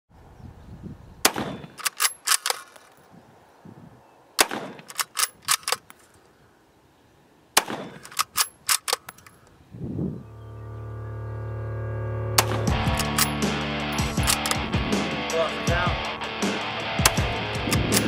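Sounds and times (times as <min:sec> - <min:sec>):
rifle shots: 0:01.2 - 0:02.7, 0:04.4 - 0:05.9, 0:07.6 - 0:09.2, 0:12.4 - 0:13.4, 0:14.0 - 0:14.7
metallic rifle bolt clicks: 0:01.5 - 0:03.1, 0:04.4 - 0:06.1, 0:07.7 - 0:09.6, 0:12.4 - 0:14.6, 0:17.1 - 0:18.0.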